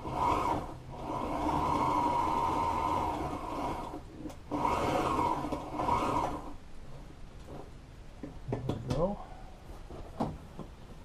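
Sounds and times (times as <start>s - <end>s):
sewing machine stitching: 0.0s - 6.6s.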